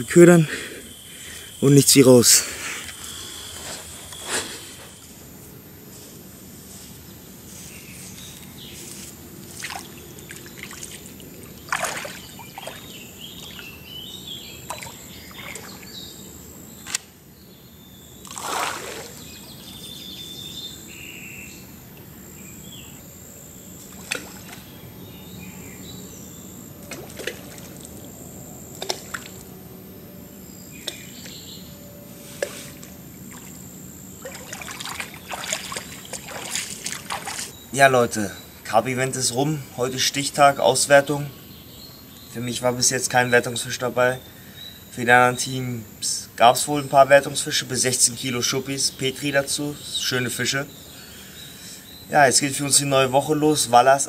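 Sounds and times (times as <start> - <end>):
small birds calling: 0.0 - 5.2, 7.1 - 54.0
water lapping at bank: 9.5 - 13.8, 14.6 - 16.0, 18.2 - 19.5, 23.9 - 24.7, 26.8 - 28.0, 32.4 - 33.6, 34.2 - 37.6.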